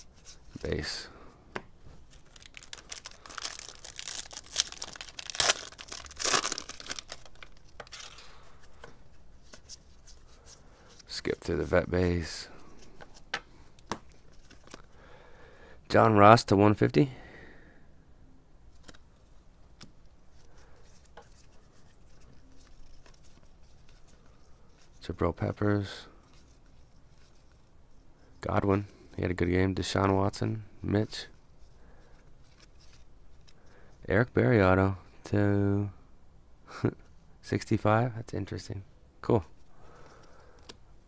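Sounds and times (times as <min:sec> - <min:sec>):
cardboard cards rustling: 0:00.0 - 0:01.0, 0:01.8 - 0:15.0, 0:18.7 - 0:25.6
foil wrapper crinkling: 0:02.1 - 0:08.5
foil wrapper ripping: 0:02.2 - 0:08.2.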